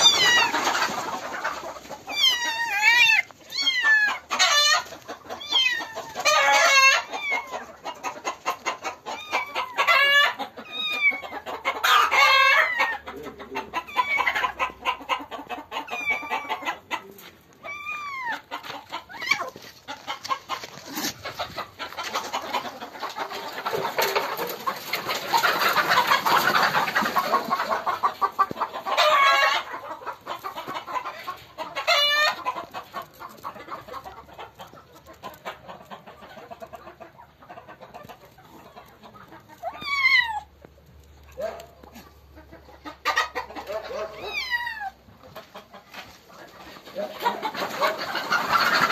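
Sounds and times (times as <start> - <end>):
kitten meowing in distress: 17.7 - 18.4, 39.8 - 40.5, 44.2 - 44.9.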